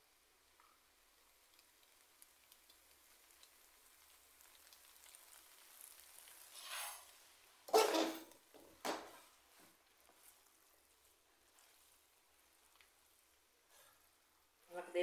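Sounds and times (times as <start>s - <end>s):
sauce sizzling in pot: 0.0s - 15.0s
spatula scraping pot: 6.4s - 8.3s.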